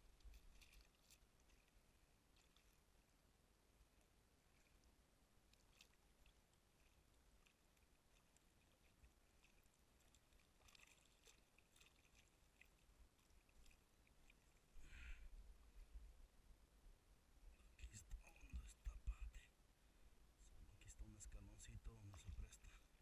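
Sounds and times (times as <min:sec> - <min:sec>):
light water sounds: 0:00.0 - 0:23.0
splash: 0:00.1 - 0:02.9, 0:05.5 - 0:14.6.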